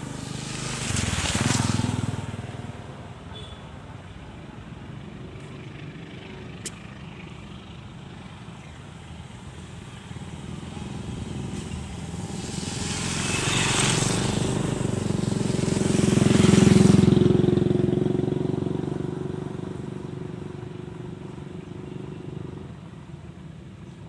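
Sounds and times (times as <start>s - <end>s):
steady engine drone: 0.0s - 1.4s, 6.3s - 17.6s
motorcycles passing by: 0.0s - 24.0s.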